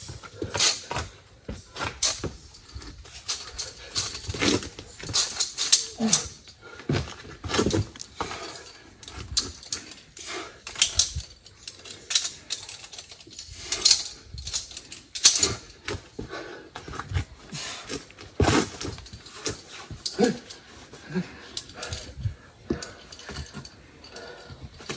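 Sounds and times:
carabiners clicking on cable: 0.0 - 24.9
heavy breathing: 0.0 - 24.9
strained grunts: 3.7 - 10.9, 15.3 - 24.9.

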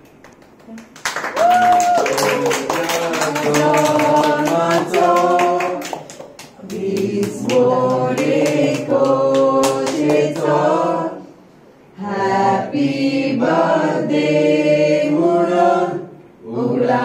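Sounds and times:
people clapping in time: 0.0 - 10.6
group singing together: 2.1 - 17.0.

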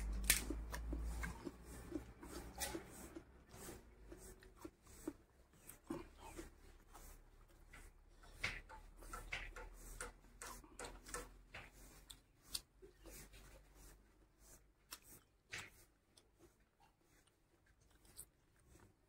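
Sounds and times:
fingers mixing rice on a plate: 0.0 - 19.0.

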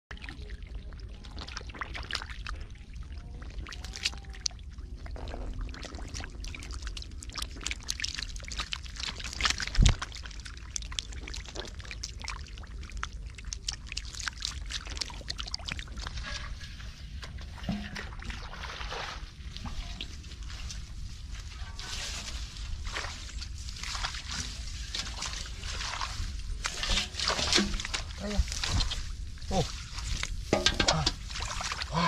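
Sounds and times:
fish splashing in water: 0.1 - 16.5.

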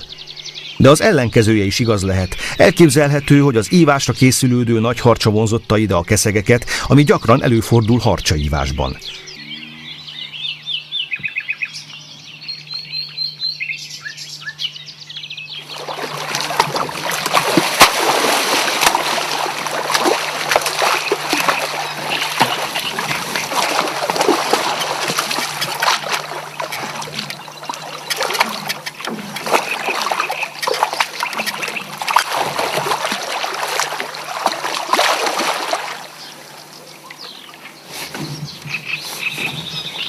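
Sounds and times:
water splashing and sloshing: 15.6 - 40.0.

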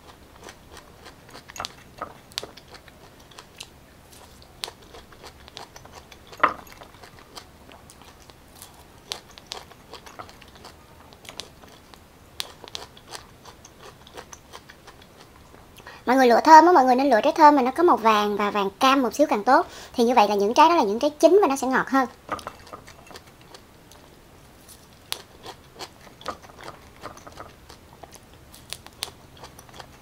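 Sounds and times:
chewing pineapple crunchily: 0.0 - 15.9, 22.1 - 30.0.

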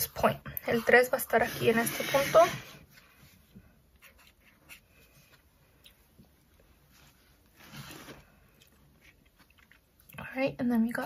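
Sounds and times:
marker scratching on paper: 0.7 - 2.8.

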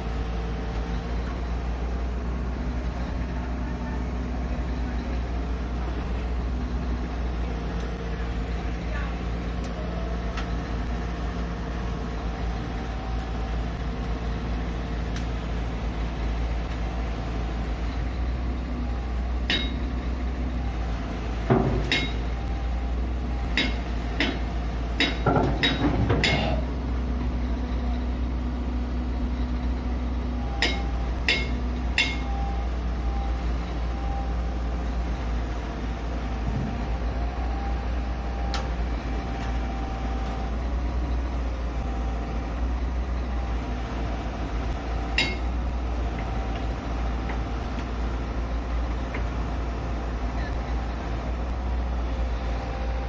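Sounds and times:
diesel engine idling: 0.0 - 53.0
sharp metallic clanks and knocks: 19.5 - 19.9, 21.4 - 22.3, 23.5 - 26.7, 30.6 - 32.3, 45.1 - 45.5.

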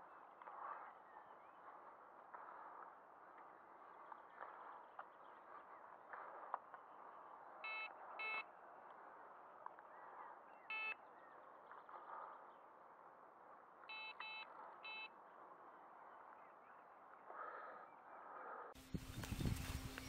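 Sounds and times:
bite alarm beeps: 7.6 - 8.5, 10.6 - 11.1, 13.9 - 15.2.

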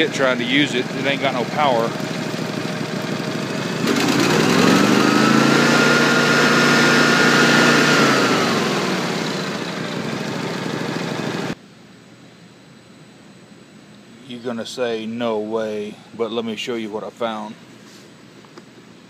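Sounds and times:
engine idling and revving: 0.0 - 11.6.

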